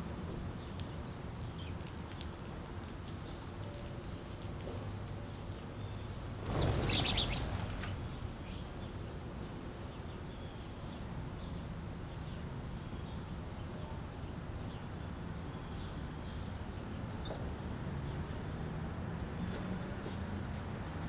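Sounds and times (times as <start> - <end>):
outdoor background noise: 0.0 - 21.0
faint bird chirps: 5.9 - 7.6
bird wingbeats flurry: 6.4 - 8.0.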